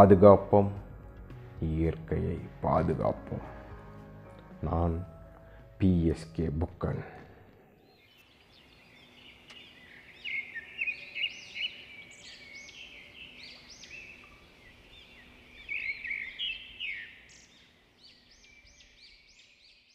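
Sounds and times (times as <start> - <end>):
small birds chirping: 6.9 - 19.9.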